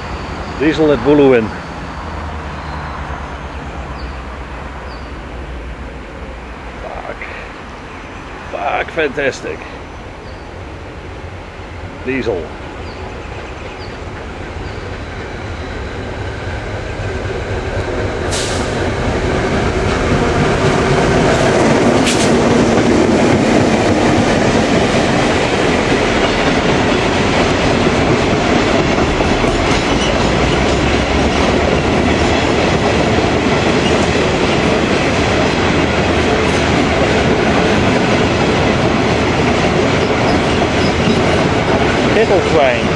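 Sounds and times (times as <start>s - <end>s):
diesel locomotive passing: 0.0s - 42.9s
train wheels clattering over rails: 13.6s - 42.9s.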